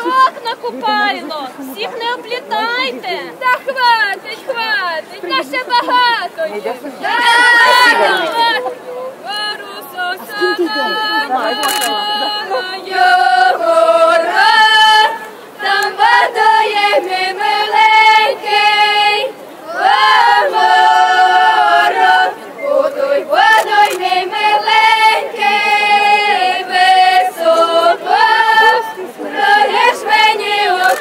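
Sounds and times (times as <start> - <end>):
women and girls singing: 7.0 - 31.0.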